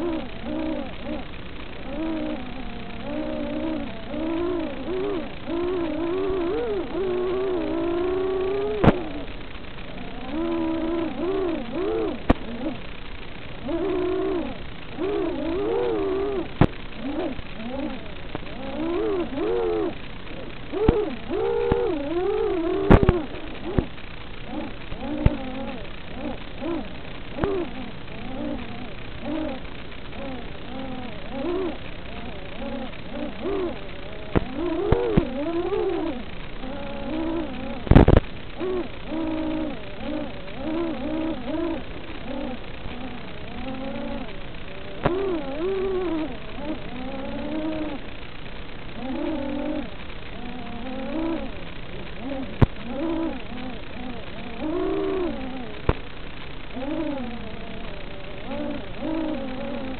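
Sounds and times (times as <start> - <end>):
quadcopter motors whining: 0.0 - 9.3, 24.5 - 29.6, 38.6 - 48.0, 49.0 - 51.6
drone motors whining: 0.0 - 59.9
sharp clicks: 3.0 - 13.9, 14.8 - 27.8, 28.4 - 39.1.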